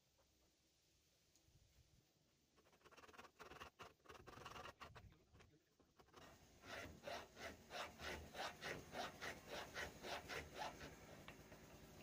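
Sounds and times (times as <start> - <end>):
hand file rasping: 6.1 - 11.0.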